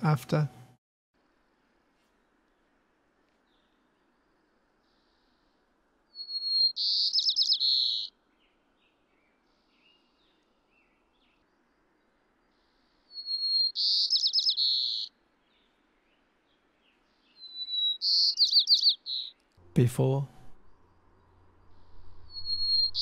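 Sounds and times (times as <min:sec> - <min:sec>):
faint low hiss: 0:00.1 - 0:06.2
sparrow singing: 0:06.1 - 0:11.4, 0:12.6 - 0:19.5, 0:20.8 - 0:23.0.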